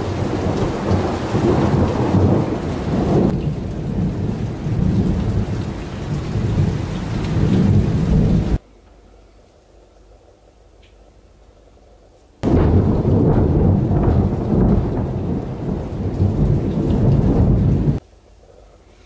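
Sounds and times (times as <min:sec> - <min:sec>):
heavy rain: 0:00.0 - 0:08.6, 0:12.4 - 0:18.4
rolling thunder: 0:00.0 - 0:08.6, 0:12.4 - 0:18.0.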